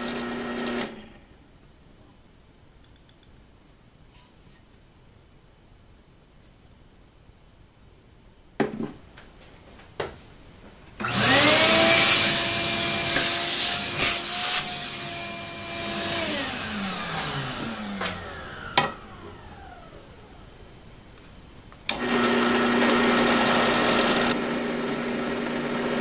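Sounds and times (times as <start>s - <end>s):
vacuum cleaner motor whining: 0.0s - 1.0s, 11.0s - 20.6s, 21.9s - 26.0s
metal chips being sucked up: 22.2s - 26.0s.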